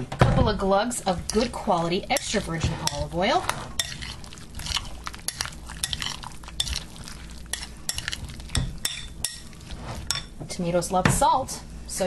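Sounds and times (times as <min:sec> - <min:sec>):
wet mixing of chopped vegetables: 0:01.0 - 0:10.4.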